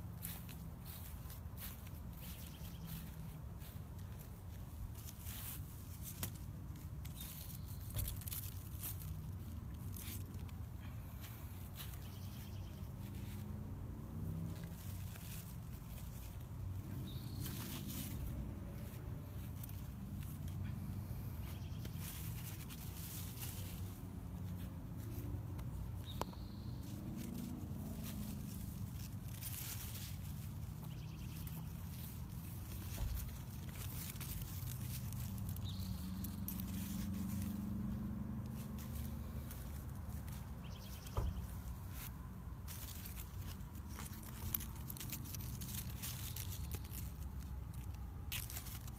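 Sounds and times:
leaves rustling: 0.0 - 48.9.

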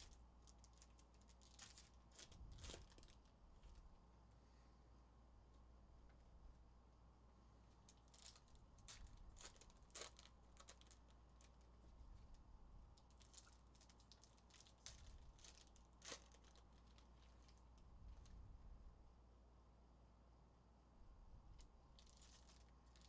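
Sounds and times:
foil wrappers torn and crinkled: 0.0 - 3.8, 7.8 - 11.8, 13.0 - 17.8, 22.0 - 23.0.

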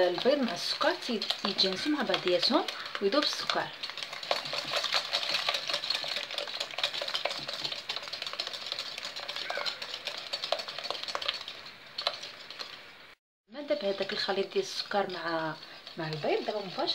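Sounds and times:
wire whisk beating in a bowl: 0.0 - 12.8, 13.7 - 16.9.

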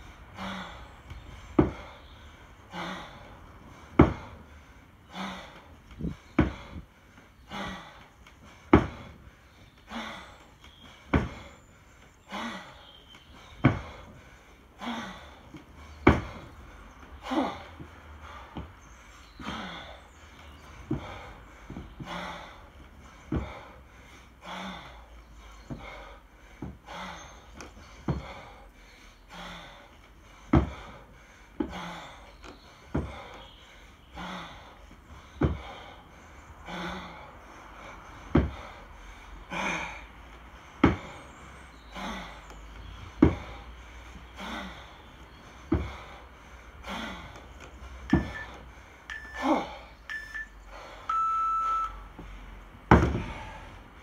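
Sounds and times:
heavy forceful breathing: 0.0 - 51.2, 52.0 - 54.0
kettlebell thudding: 1.6 - 1.9, 3.9 - 4.3, 6.4 - 6.7, 8.7 - 9.1, 11.1 - 11.4, 16.0 - 16.5, 38.3 - 38.6, 40.8 - 41.1, 43.2 - 43.5, 45.7 - 46.0, 48.1 - 50.3, 52.9 - 53.4
short beeps: 48.1 - 52.1.

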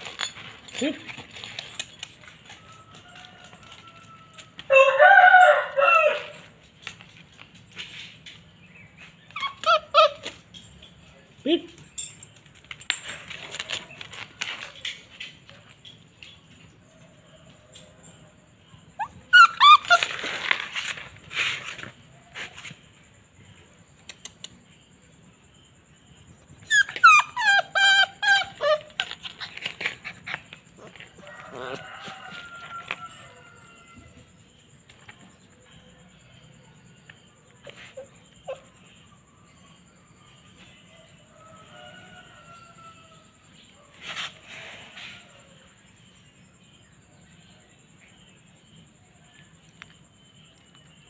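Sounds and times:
rooster crowing: 2.6 - 6.6, 31.0 - 34.3, 41.1 - 43.4
small dog whining: 9.3 - 10.5, 19.0 - 20.5, 26.6 - 30.9.

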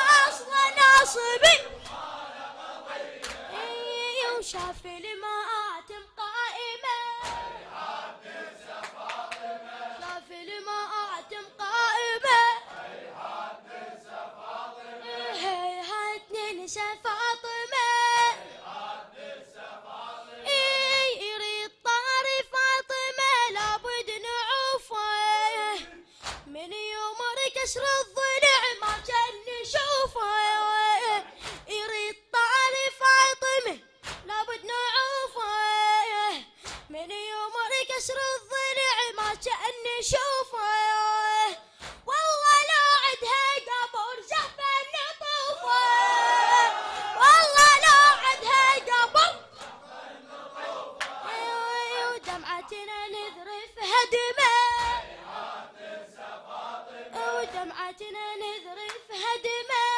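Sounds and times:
boy chanting a lament: 0.0 - 1.8, 42.2 - 49.6, 51.3 - 55.1.

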